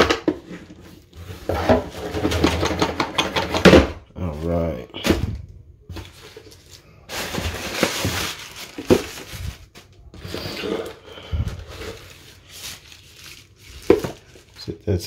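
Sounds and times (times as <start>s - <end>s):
packaging rustling and crinkling: 5.9s - 14.8s.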